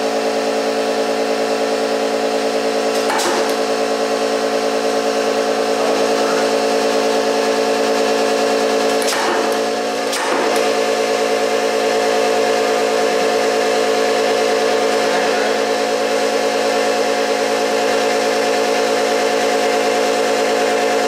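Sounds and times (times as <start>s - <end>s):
punch press humming: 0.0s - 21.0s.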